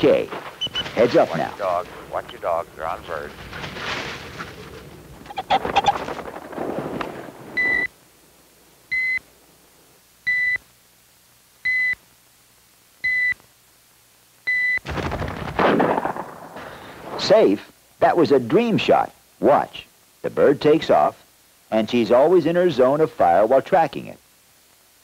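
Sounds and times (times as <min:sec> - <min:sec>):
rustling and flushing noise: 0:00.0 - 0:07.9
short electronic beeps: 0:00.6 - 0:01.0, 0:07.6 - 0:07.9.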